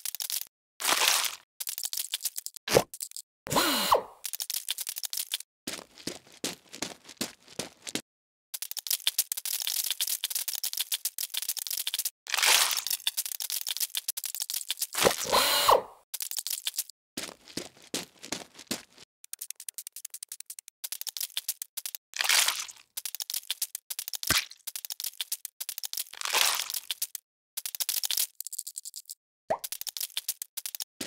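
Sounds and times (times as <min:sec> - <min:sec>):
plastic toy parts clicking: 0:00.0 - 0:00.5, 0:01.6 - 0:03.2, 0:04.2 - 0:05.5, 0:08.6 - 0:12.1, 0:12.8 - 0:15.4, 0:19.2 - 0:22.0, 0:22.7 - 0:30.9
rapid ratchet-like clicks: 0:19.2 - 0:22.0.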